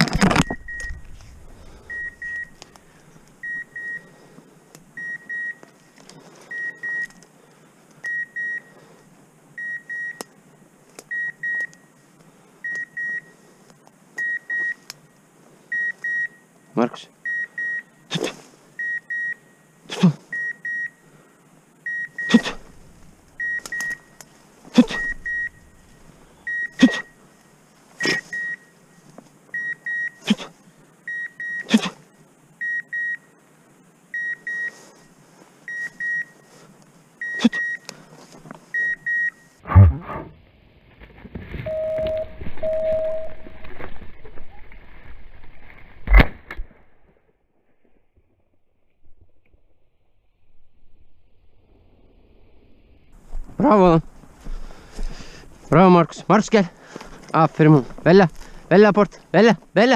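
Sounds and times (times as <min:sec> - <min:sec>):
high double beeps: 0:01.9 - 0:02.6, 0:24.9 - 0:25.7, 0:41.7 - 0:43.6
rustling through grass: 0:22.5 - 0:29.5.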